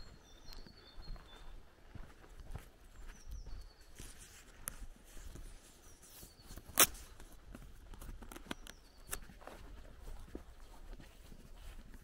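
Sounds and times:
bird chirps: 0.0 - 1.7, 2.9 - 4.2, 5.7 - 7.2, 8.3 - 9.6
footsteps on dirt path: 0.0 - 12.0.

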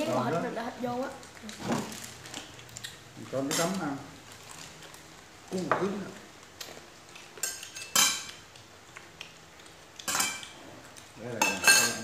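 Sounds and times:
spoons clinking against bowls: 7.4 - 8.4, 10.0 - 10.6, 11.4 - 12.0.

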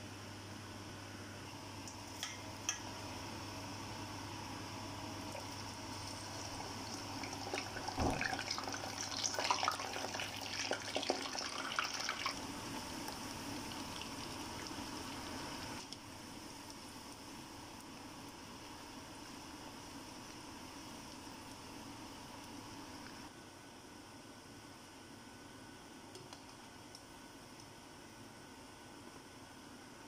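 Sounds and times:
potatoes deep-frying in oil: 1.5 - 30.0
thump: 8.0 - 8.2.

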